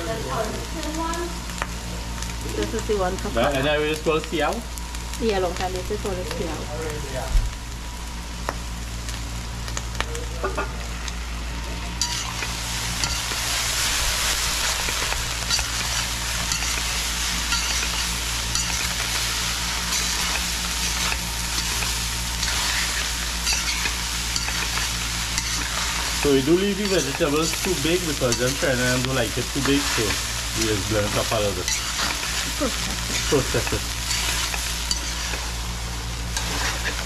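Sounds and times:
rice sizzling in a pan: 0:00.0 - 0:37.0
spatula scraping and clinking pan: 0:15.4 - 0:19.0, 0:19.8 - 0:26.0, 0:34.0 - 0:35.4.

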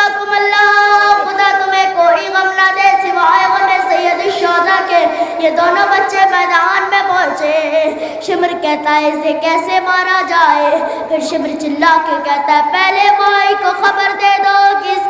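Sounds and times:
boy singing a lament: 0:00.0 - 0:15.0.

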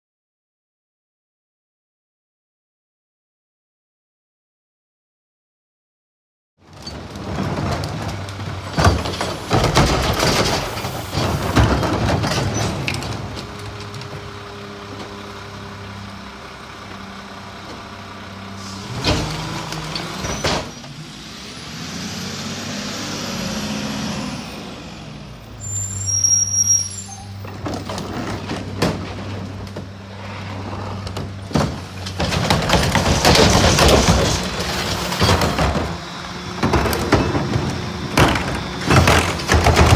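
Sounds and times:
trash carts clattering: 0:06.6 - 0:21.0, 0:27.2 - 0:39.9
garbage truck engine humming: 0:06.6 - 0:39.9
brake hiss: 0:18.5 - 0:19.9.

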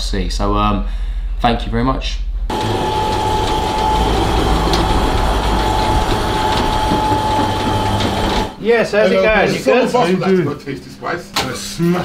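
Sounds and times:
mechanical rumble and rattle: 0:02.5 - 0:08.6
mid-pitched hum: 0:02.5 - 0:08.6.

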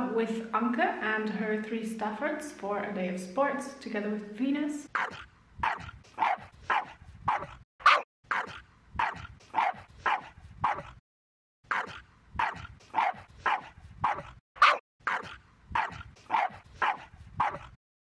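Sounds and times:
dog barking: 0:05.0 - 0:11.0, 0:11.7 - 0:17.8.

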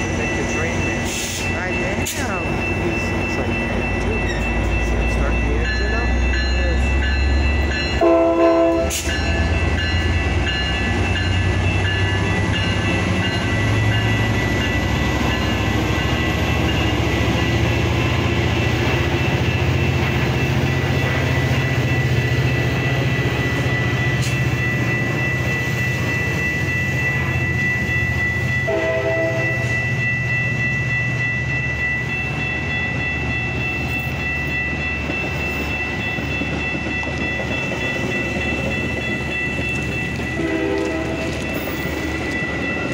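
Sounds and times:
steady high ringing tone: 0:00.0 - 0:42.9
train cars rumbling over rails: 0:00.0 - 0:42.9
train engine hum: 0:00.0 - 0:42.9
train horn blasts: 0:08.0 - 0:09.2, 0:28.7 - 0:29.7, 0:40.4 - 0:41.3.

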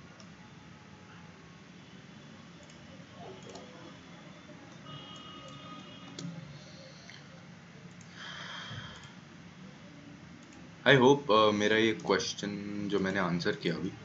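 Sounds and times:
computer mouse clicks: 0:02.6 - 0:02.8, 0:03.4 - 0:03.7, 0:04.7 - 0:06.4, 0:07.9 - 0:08.2, 0:08.8 - 0:09.2, 0:10.4 - 0:10.6.

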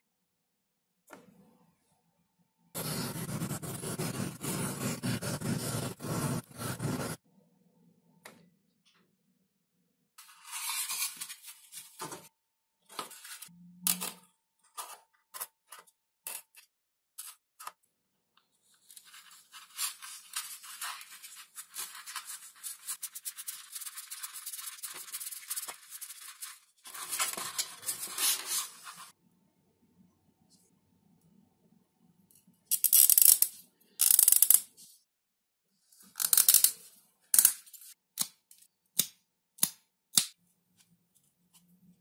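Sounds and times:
hand tool scraping foam board: 0:02.8 - 0:07.2.

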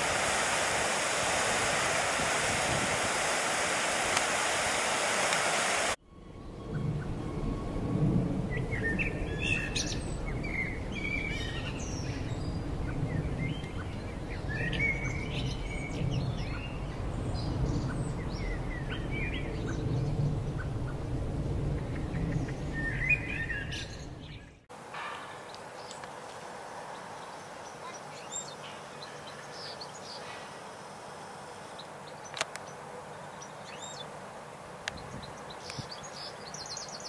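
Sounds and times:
wind rumble on microphone: 0:00.0 - 0:24.6, 0:34.8 - 0:37.0
birds chirping and calling: 0:26.9 - 0:30.6, 0:34.9 - 0:37.0.

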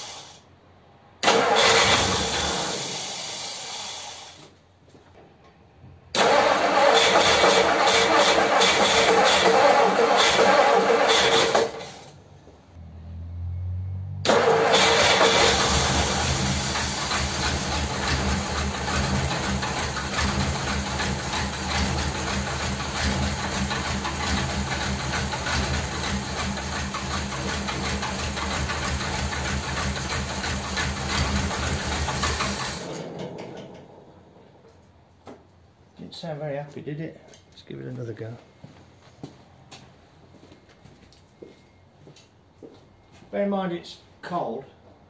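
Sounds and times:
car engine running roughly: 0:06.2 - 0:12.0, 0:14.2 - 0:34.2.

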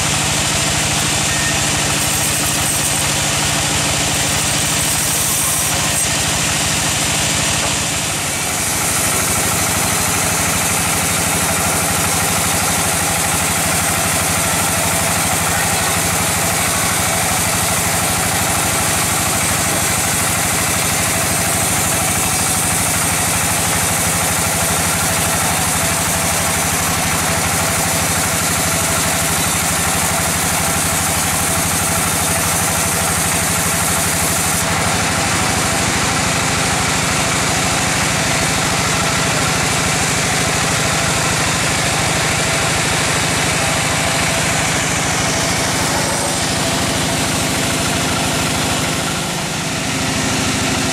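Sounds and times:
band saw cutting log: 0:00.0 - 0:50.9
engine hum and throb: 0:00.0 - 0:50.9.

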